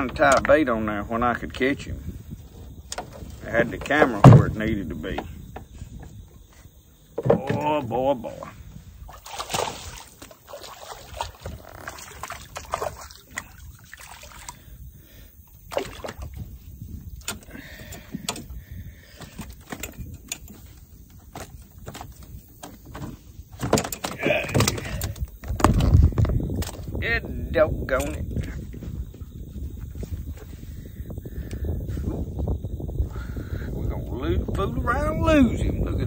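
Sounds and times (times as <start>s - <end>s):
water sloshing: 7.0s - 27.0s.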